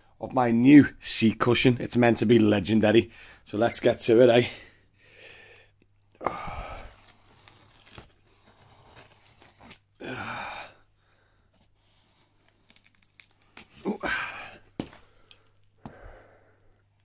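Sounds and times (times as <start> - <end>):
knife slicing cardboard: 7.4 - 9.8.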